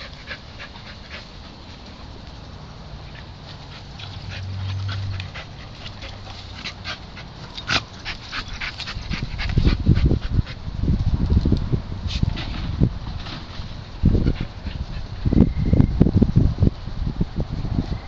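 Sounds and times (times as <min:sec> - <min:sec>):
dog panting: 0:00.0 - 0:02.1, 0:03.0 - 0:10.6, 0:14.0 - 0:15.4.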